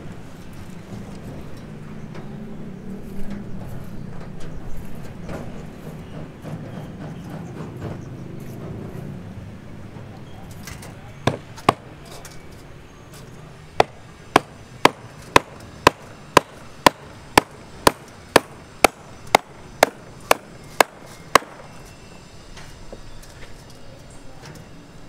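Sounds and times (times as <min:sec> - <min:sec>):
hammer striking steel rebar: 0:11.2 - 0:12.2, 0:13.8 - 0:21.9.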